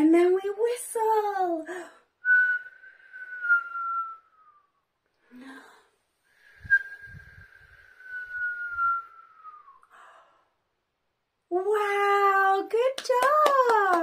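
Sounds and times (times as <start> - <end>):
woman whistling: 2.2 - 4.8, 6.6 - 9.9.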